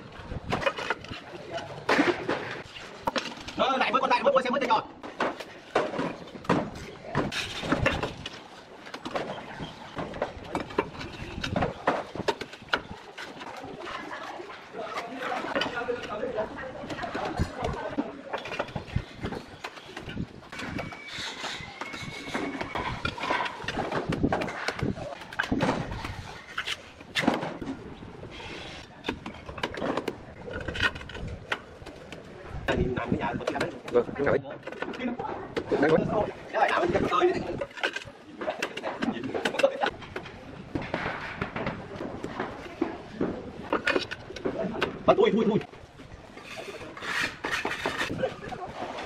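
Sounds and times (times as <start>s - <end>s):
roof tiles clinking and knocking: 0.4s - 45.7s
trowel scraping: 18.4s - 27.4s, 46.4s - 48.2s.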